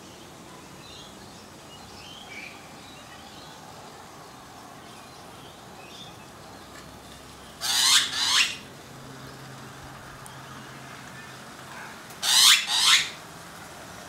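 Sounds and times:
magpie squawks: 7.6s - 8.6s, 12.2s - 13.2s.

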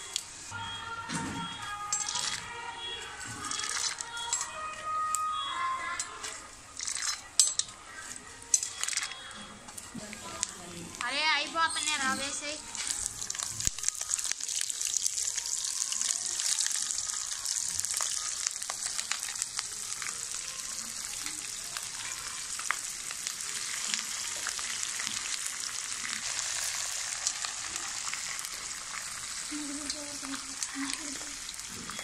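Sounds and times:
oil sizzling: 1.6s - 32.0s
ladle stirring: 1.9s - 2.5s, 3.1s - 4.6s, 6.0s - 10.5s
sharp crackles: 3.4s - 4.5s, 10.2s - 32.0s.

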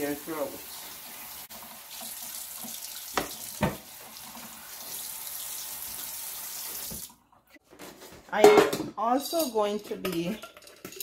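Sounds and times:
tap running into metal sink: 3.1s - 3.9s.

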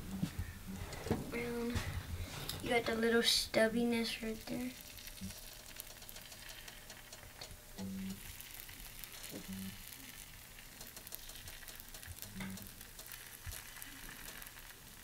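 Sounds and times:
faint crackling: 0.0s - 15.0s
batter sizzling in a frying pan: 4.0s - 15.0s.

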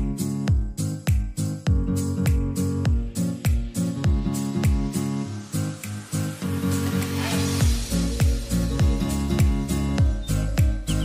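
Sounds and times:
plucked guitar: 0.0s - 5.3s
upbeat music with kick drum: 0.0s - 11.0s.

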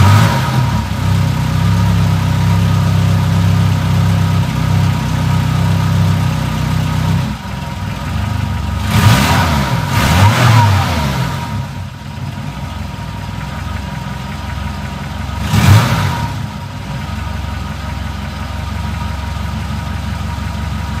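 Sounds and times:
engine revving: 0.0s - 12.6s, 15.2s - 17.1s
car engine idling: 0.0s - 21.0s.

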